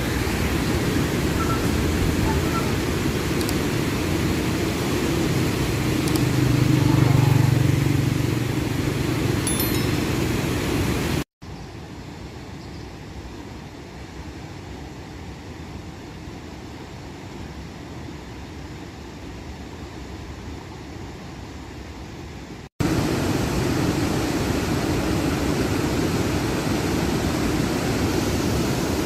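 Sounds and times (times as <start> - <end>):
road traffic noise: 0.0 - 11.2.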